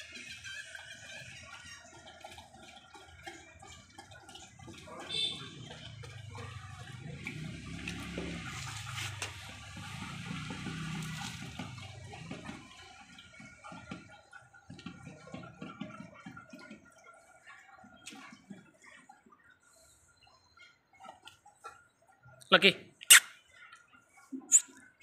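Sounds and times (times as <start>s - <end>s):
dog lapping water: 0.0s - 25.0s.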